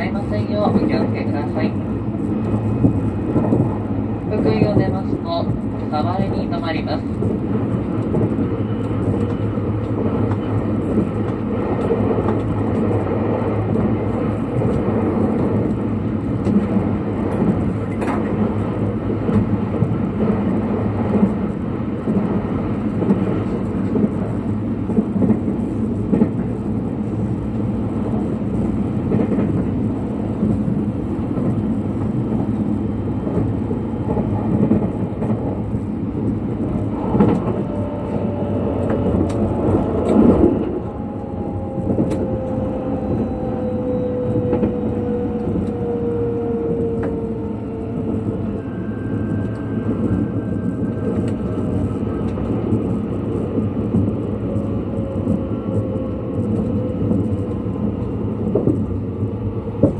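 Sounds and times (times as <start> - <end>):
train clicks: 0.0 - 59.9
train wheels rumbling: 0.0 - 59.9.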